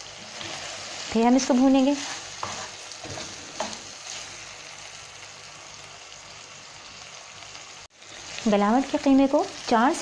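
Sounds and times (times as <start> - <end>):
meat sizzling in a pan: 0.0 - 10.0
spatula scraping a pan: 0.2 - 4.5.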